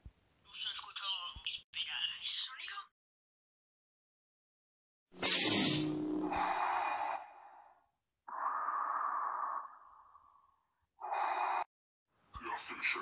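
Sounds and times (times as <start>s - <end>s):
mechanical respirator breathing: 5.8s - 10.4s.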